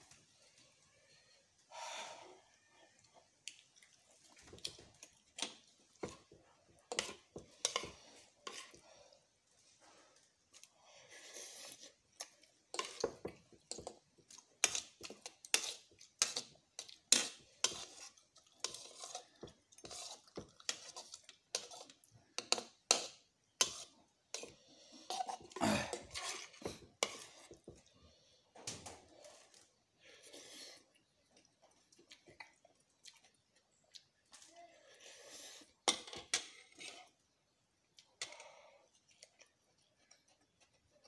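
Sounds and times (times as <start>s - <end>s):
fork and spoon scraping a bowl: 6.9s - 8.8s, 14.6s - 27.6s, 35.4s - 37.2s.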